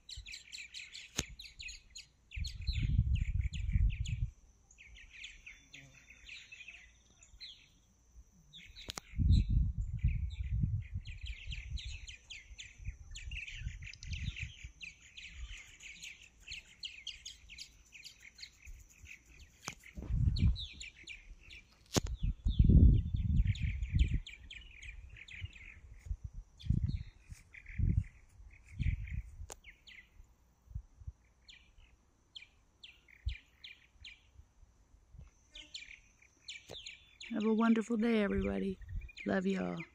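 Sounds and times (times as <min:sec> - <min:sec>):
birds twittering: 0:00.0 - 0:07.9, 0:08.5 - 0:30.2, 0:31.2 - 0:34.4, 0:35.4 - 0:39.9
low rumble on microphone: 0:02.3 - 0:04.4, 0:09.0 - 0:12.2, 0:19.9 - 0:21.2, 0:22.0 - 0:29.5.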